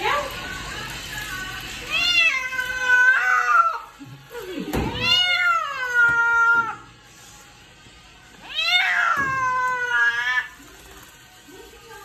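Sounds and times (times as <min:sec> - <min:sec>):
cat meowing: 0:01.9 - 0:03.8, 0:08.4 - 0:10.6.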